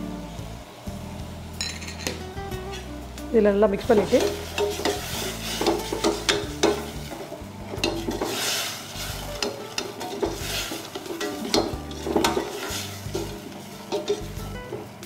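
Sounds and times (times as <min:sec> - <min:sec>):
vegetables sizzling in oil: 0:00.0 - 0:15.0
metal spoon scraping saucepan: 0:04.0 - 0:14.8
spoon clinking against pan: 0:04.2 - 0:06.9.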